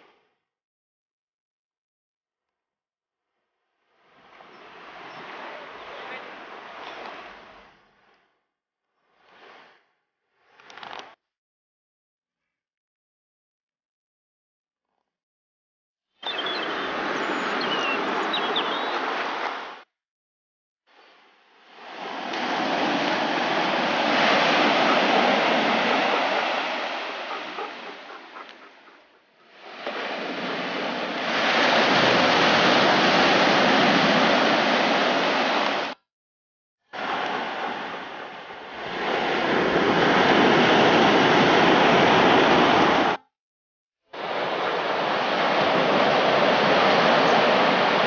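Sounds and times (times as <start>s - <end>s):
surf washing up beach: 4.0s - 7.8s, 16.3s - 19.8s, 21.0s - 36.0s, 37.0s - 43.2s, 44.2s - 48.0s.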